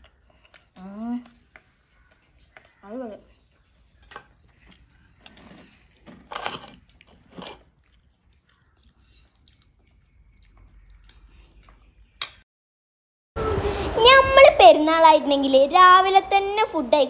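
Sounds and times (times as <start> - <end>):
eating by hand from a plate: 0.0 - 12.4.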